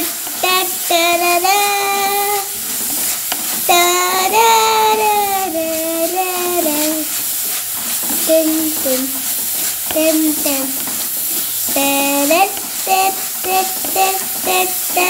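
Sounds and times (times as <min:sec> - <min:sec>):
high voice singing: 0:00.0 - 0:02.6, 0:03.7 - 0:07.1, 0:08.2 - 0:09.2, 0:09.9 - 0:10.8, 0:11.7 - 0:15.0
vegetables sizzling in oil: 0:00.0 - 0:15.0
wooden spatula stirring: 0:00.0 - 0:15.0.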